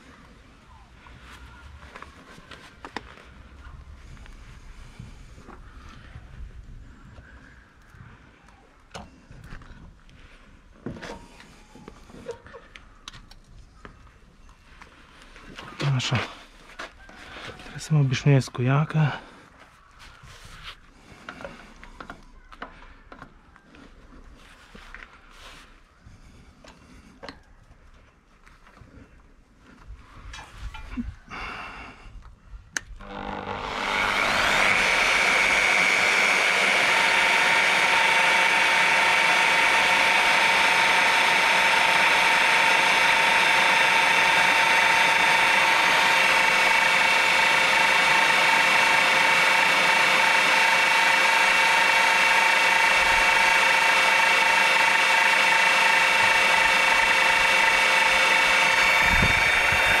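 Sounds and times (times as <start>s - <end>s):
drill motor whining: 32.8s - 60.0s.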